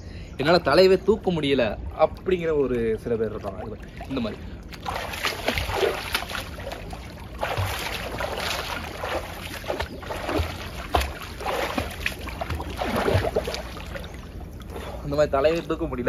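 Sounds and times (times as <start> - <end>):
swimming splashes and sloshing water: 1.9 - 15.9.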